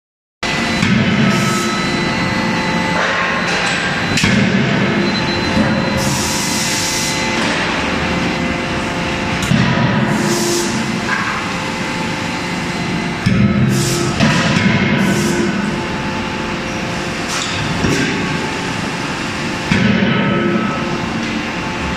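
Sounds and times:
loud machine din with hum: 0:00.4 - 0:21.9
forging hammer striking steel: 0:02.8 - 0:06.0, 0:13.2 - 0:15.6.

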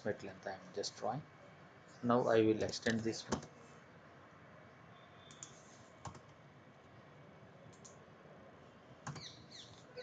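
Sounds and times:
mouse and keyboard clicks: 0:05.2 - 0:06.4.

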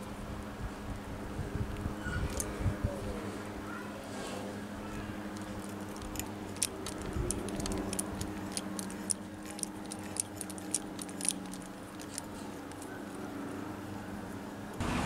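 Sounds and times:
steady low hum: 0:00.0 - 0:15.0
deburring tool clicking in metal: 0:05.3 - 0:12.9.

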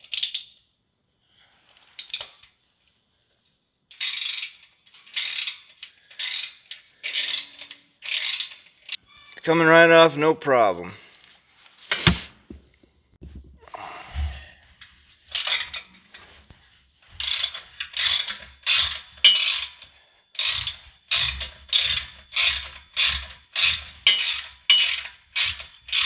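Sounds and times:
ratchet wrench ratcheting: 0:03.9 - 0:09.0, 0:17.2 - 0:26.0
metal clinks: 0:19.2 - 0:19.9, 0:24.0 - 0:26.0.

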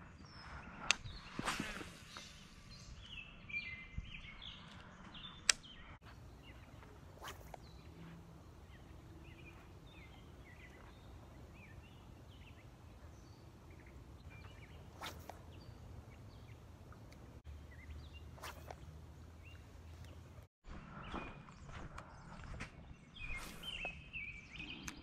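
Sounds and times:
small birds chirping: 0:00.0 - 0:25.0
brief swishes: 0:00.6 - 0:02.8, 0:06.5 - 0:08.3, 0:14.3 - 0:15.6, 0:18.3 - 0:18.9, 0:23.2 - 0:24.0.

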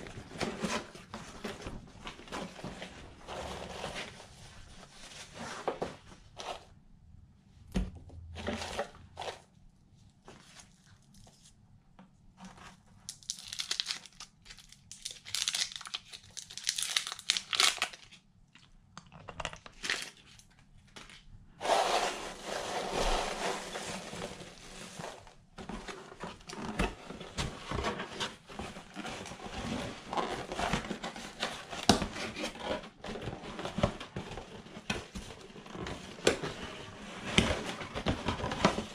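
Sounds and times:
paper rustling and crinkling: 0:00.0 - 0:06.7, 0:19.8 - 0:38.9.

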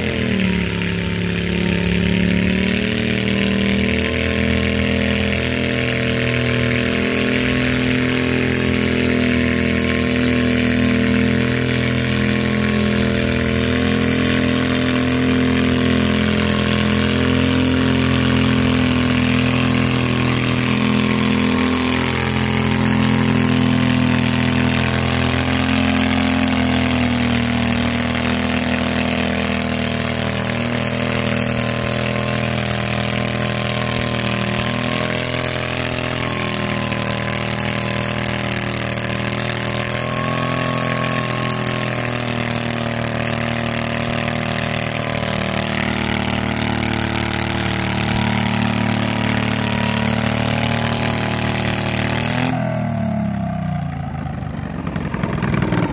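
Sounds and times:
tractor engine with open exhaust: 0:00.0 - 0:55.9.

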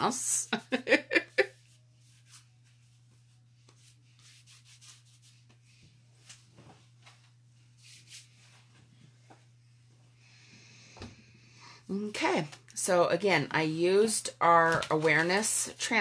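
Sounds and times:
hands rubbing and rustling: 0:01.4 - 0:09.6.

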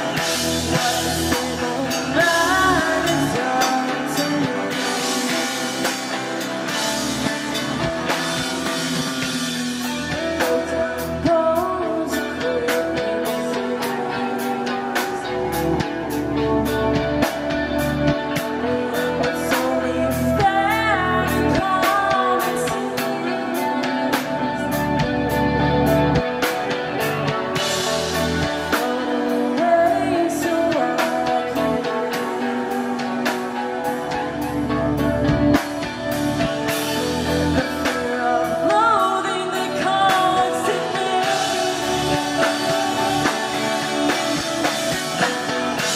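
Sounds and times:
live rock band playing: 0:00.0 - 0:45.9
person singing: 0:00.0 - 0:45.9.

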